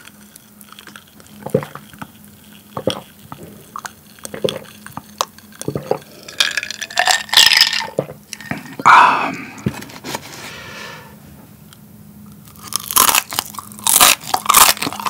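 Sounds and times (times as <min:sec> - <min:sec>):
person gulping a drink: 0:00.8 - 0:09.7
breathy noise: 0:08.5 - 0:11.2.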